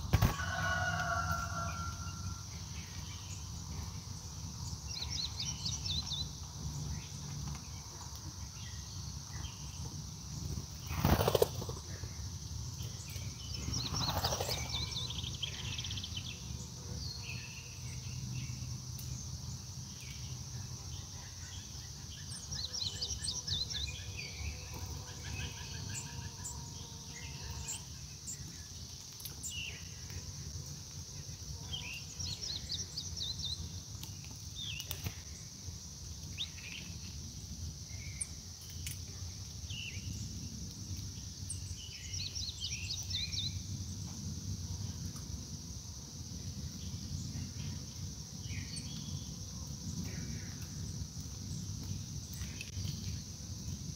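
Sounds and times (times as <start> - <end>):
insects droning: 0.0 - 53.9
songbirds chirping: 0.0 - 53.9.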